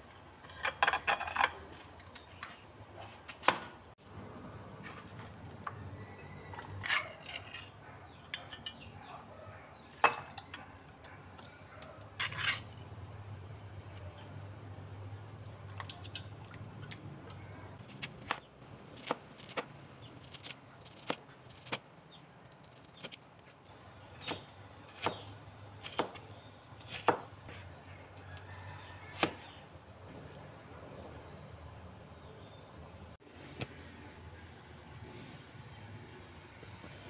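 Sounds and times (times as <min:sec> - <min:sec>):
knife chopping on cutting board: 0:24.2 - 0:26.2, 0:26.8 - 0:27.3, 0:29.1 - 0:29.5.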